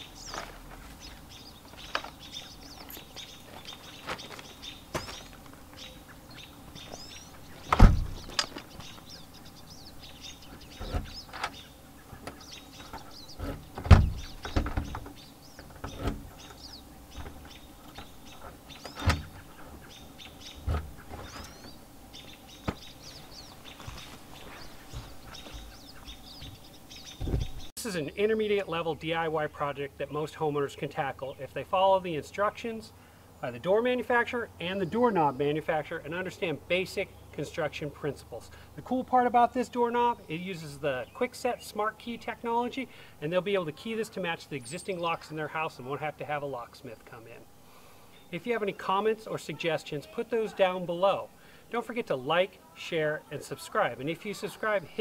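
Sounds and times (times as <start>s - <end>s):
birds chirping faintly: 0.0s - 55.0s
door hardware clicks and knocks: 7.7s - 8.6s, 13.4s - 16.2s, 18.8s - 19.3s.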